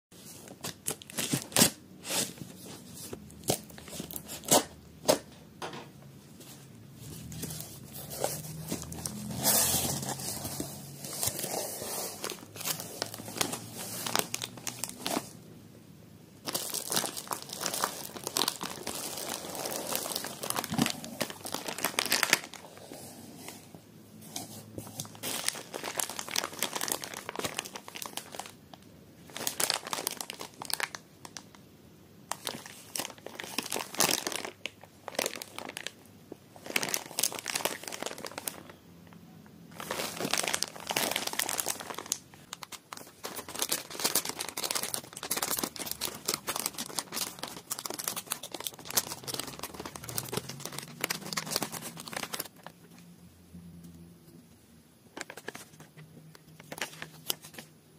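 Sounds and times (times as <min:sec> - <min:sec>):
plastic packaging crinkling: 0:00.3 - 0:05.3, 0:06.4 - 0:15.4, 0:16.4 - 0:23.1, 0:24.4 - 0:31.5, 0:32.3 - 0:38.8, 0:39.7 - 0:52.9, 0:55.1 - 0:57.7.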